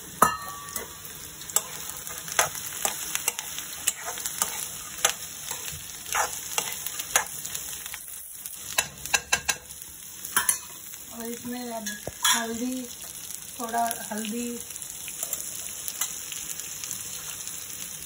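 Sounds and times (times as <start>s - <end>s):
food sizzling in hot oil: 0.0s - 18.0s
metal spatula scraping pan: 0.3s - 7.4s.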